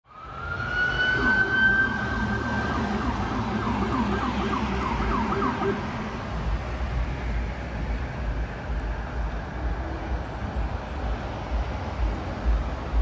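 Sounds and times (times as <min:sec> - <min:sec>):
emergency vehicle sirens: 0:00.0 - 0:11.6
low rumble: 0:06.0 - 0:13.0.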